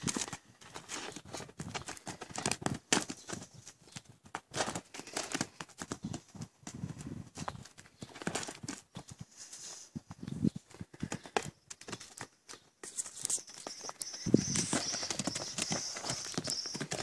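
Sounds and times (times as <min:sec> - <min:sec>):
hooves on gravelly dirt: 0:13.4 - 0:17.0.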